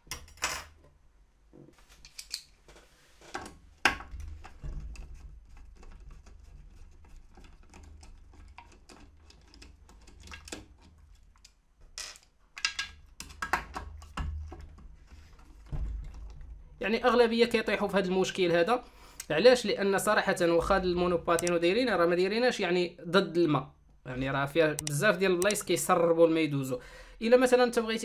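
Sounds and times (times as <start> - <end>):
screwdriver clicks and scrapes: 1.9 - 2.5
low steady hum: 12.9 - 22.5.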